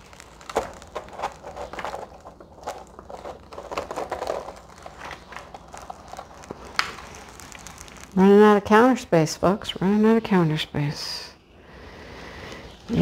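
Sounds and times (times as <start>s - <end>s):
paper and canvas crinkling: 0.0s - 9.2s.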